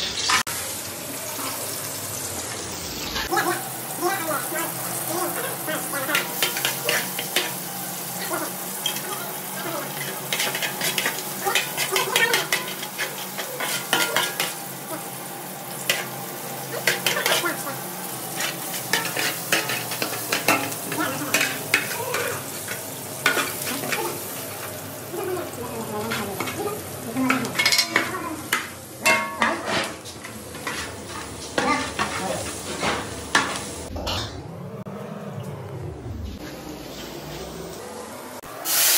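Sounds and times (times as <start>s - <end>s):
onions sizzling in hot oil: 0.0s - 33.9s, 38.4s - 38.9s
metal spatula scraping a pan: 9.9s - 14.6s, 18.3s - 24.2s.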